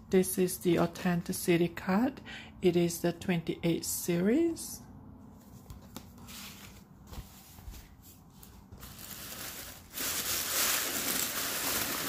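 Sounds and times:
tissue paper crinkling: 0:05.5 - 0:12.0.

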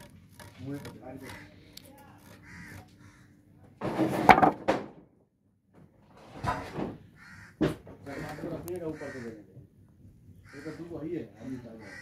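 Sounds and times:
wooden planks clattering: 0:03.8 - 0:05.0, 0:06.1 - 0:07.0.

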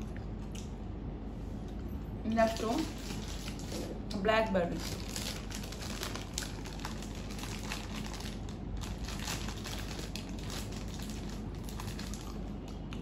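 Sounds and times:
plastic packet crinkling: 0:02.4 - 0:03.9, 0:04.7 - 0:12.6.

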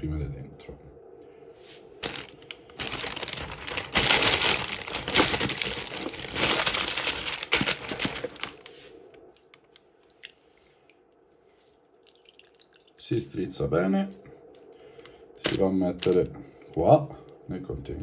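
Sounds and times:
baking paper rustling and crinkling: 0:02.0 - 0:08.9.

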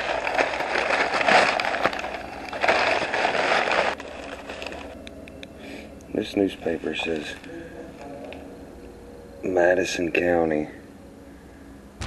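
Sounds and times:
rough rustling and scraping: 0:00.0 - 0:05.0.

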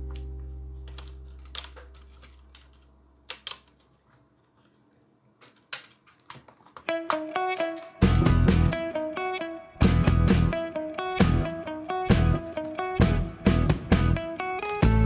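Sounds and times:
laptop parts clicking and tapping: 0:00.9 - 0:04.8, 0:05.4 - 0:08.0
plucked guitar music: 0:06.9 - 0:15.0.

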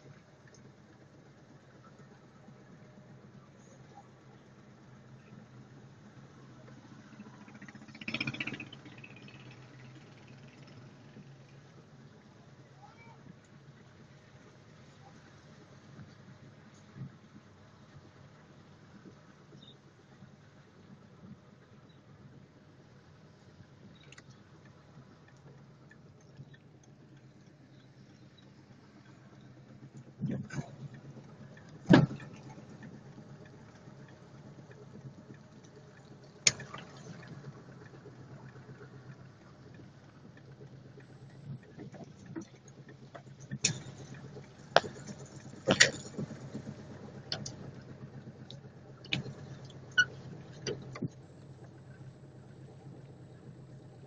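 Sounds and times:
car engine and road hum: 0:00.0 - 0:54.0.

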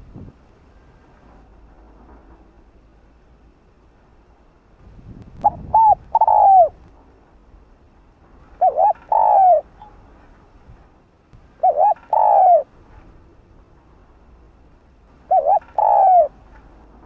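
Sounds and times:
dove cooing: 0:05.4 - 0:06.8, 0:08.6 - 0:10.0, 0:11.6 - 0:12.7, 0:15.2 - 0:16.4.

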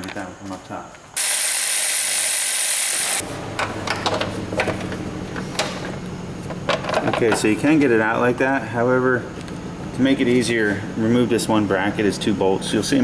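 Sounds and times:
low steady hum: 0:03.2 - 0:13.0.

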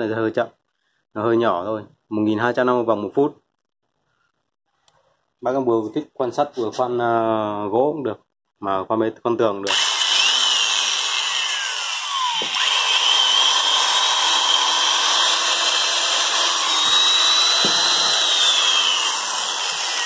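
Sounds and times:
electric drill motor whine: 0:09.7 - 0:20.0.

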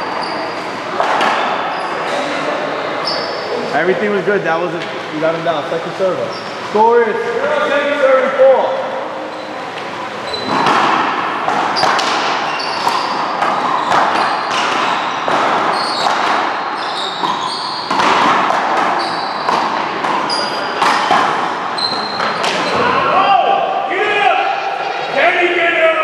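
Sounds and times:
sneakers squeaking on floor: 0:00.0 - 0:03.8, 0:06.1 - 0:06.8, 0:09.2 - 0:23.1.

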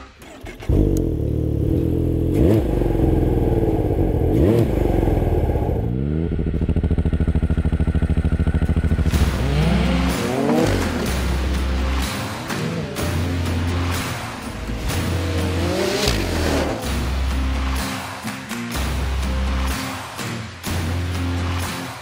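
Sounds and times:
snowmobile engine revving: 0:08.2 - 0:18.0.

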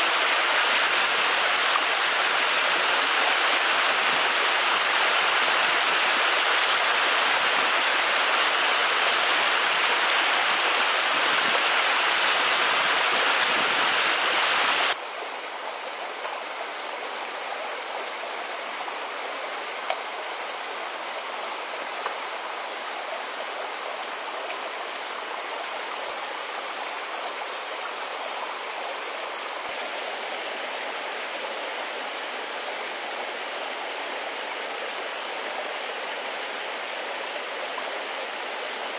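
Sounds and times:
waterfall rushing splash: 0:00.0 - 0:15.0
shallow stream flowing: 0:00.0 - 0:38.9.

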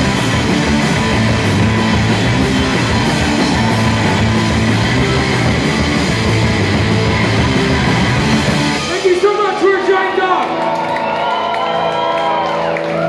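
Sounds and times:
drum kit with crashing cymbals: 0:00.0 - 0:09.6
distorted electric guitars: 0:00.0 - 0:11.1
bass guitar: 0:00.0 - 0:13.0.

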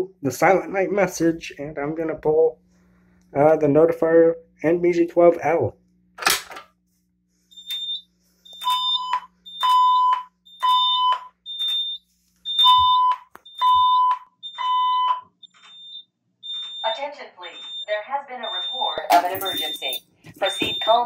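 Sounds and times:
pulsing fire alarm tone: 0:07.5 - 0:21.0
short high beep: 0:19.1 - 0:21.0.

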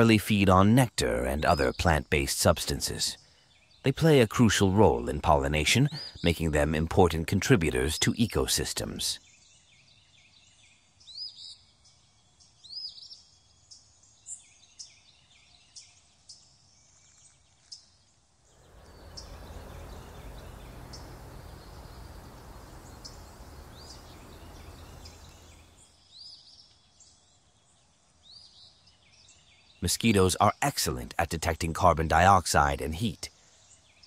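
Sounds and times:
birds chirping: 0:18.5 - 0:25.9, 0:29.8 - 0:33.3
steady hiss: 0:18.5 - 0:25.9.

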